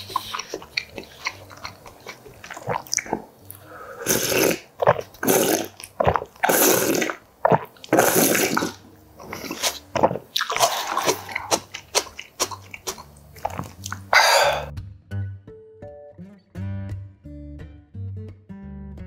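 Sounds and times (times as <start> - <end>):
soup slurping: 0.0 - 14.7.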